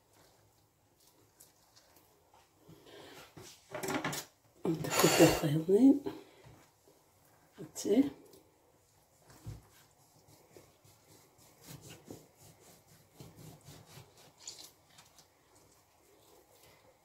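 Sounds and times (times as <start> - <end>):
citrus reamer rubbing: 9.2 - 15.2.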